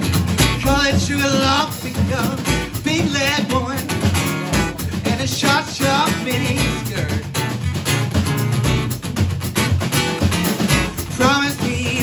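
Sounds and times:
drum kit: 0:00.0 - 0:12.0
strummed acoustic guitar: 0:00.0 - 0:12.0
man singing: 0:00.6 - 0:07.4, 0:10.9 - 0:12.0
bass drum thump: 0:02.0 - 0:11.3.

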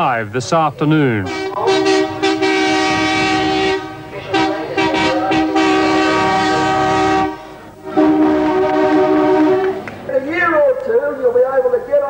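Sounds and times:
train horn blasts: 0:01.2 - 0:09.9.

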